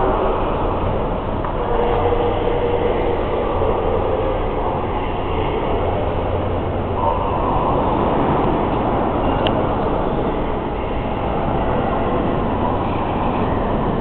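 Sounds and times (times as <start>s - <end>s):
indistinct voices: 0.0s - 14.0s
station hall background din: 0.0s - 14.0s.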